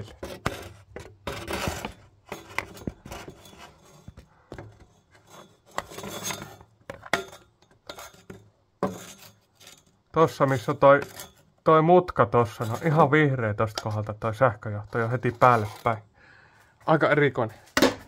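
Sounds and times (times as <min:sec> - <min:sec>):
rubbing and scraping: 0:00.0 - 0:16.1.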